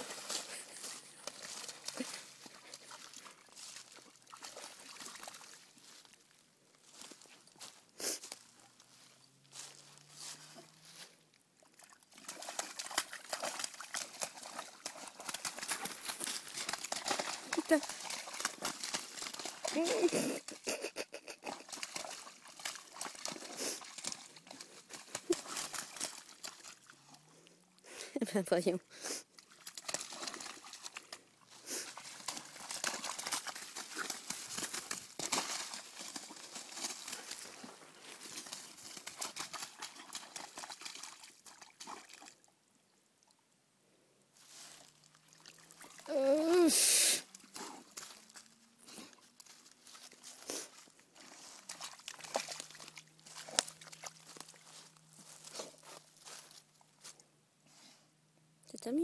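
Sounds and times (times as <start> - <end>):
dog splashing through mud: 0.0 - 6.2, 6.8 - 42.4, 44.4 - 57.2.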